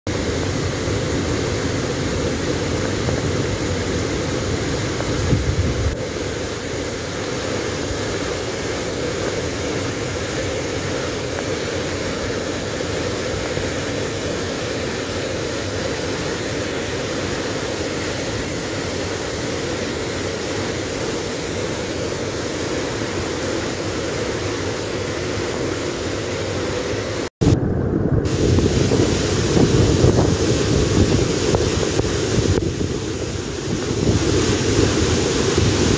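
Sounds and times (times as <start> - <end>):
waterfall rushing: 0.1 - 27.3, 28.2 - 35.9
low rumble: 27.4 - 31.0.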